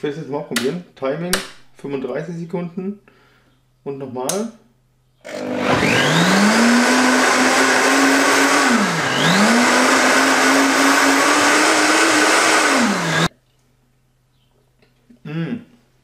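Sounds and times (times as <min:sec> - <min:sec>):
blender motor whirring: 0:05.2 - 0:13.3.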